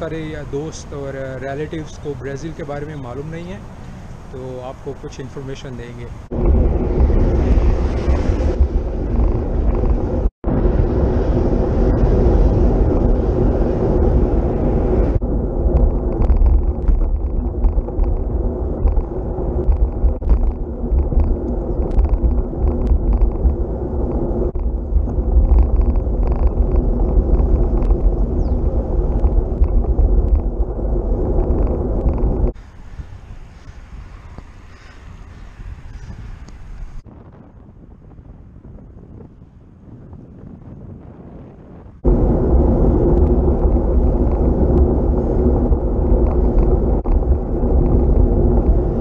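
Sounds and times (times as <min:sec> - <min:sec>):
road rumble: 0:00.0 - 0:49.0
wind on microphone: 0:00.0 - 0:49.0.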